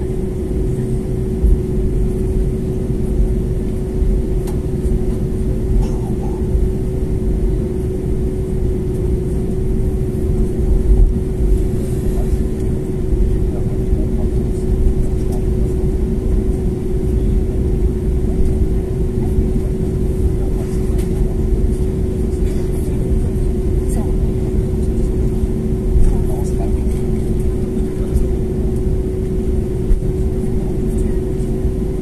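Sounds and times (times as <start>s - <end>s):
jet engines humming: 0.0s - 32.0s
low uneven cabin rumble: 0.0s - 32.0s.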